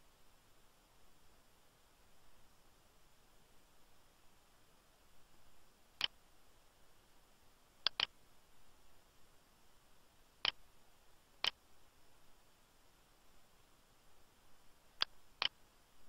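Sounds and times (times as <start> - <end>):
faint room hiss: 0.0 - 16.0
computer mouse clicking: 7.8 - 8.1.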